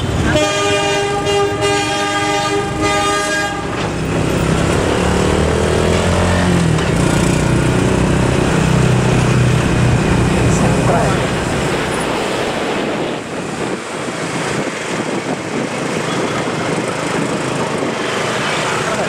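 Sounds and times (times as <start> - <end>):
locomotive engine drone: 0.0 - 19.0
train horn: 0.2 - 3.9, 5.8 - 6.5
rumble of rolling wagons: 3.6 - 19.0.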